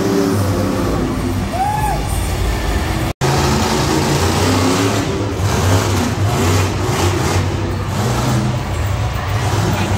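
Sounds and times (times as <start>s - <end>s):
monster truck engines revving: 0.0s - 9.9s.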